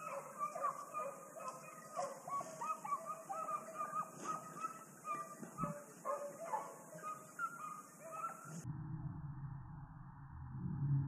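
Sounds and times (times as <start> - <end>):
hunting dogs yelping and baying: 0.0 - 8.6.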